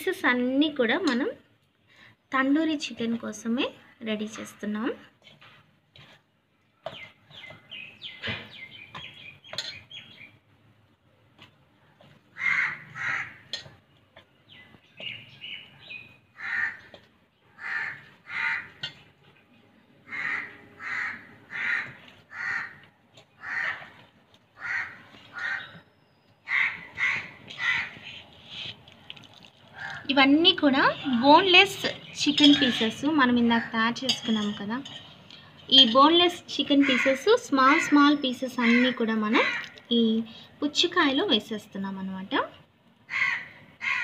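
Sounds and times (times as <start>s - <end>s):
crows cawing: 12.3s - 13.5s, 16.4s - 19.0s, 20.0s - 25.8s, 26.4s - 28.2s, 29.7s - 30.1s, 36.8s - 39.8s, 43.1s - 44.0s.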